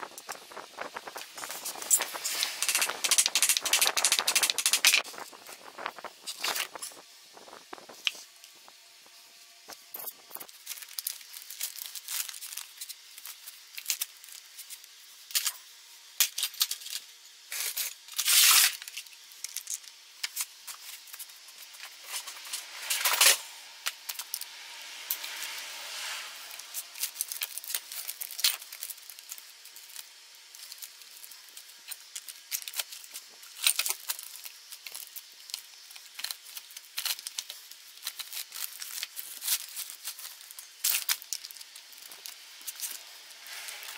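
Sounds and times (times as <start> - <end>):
paper crinkling: 0.0 - 8.7, 9.7 - 14.9, 26.5 - 43.9
rustling scraping bursts: 0.0 - 8.7.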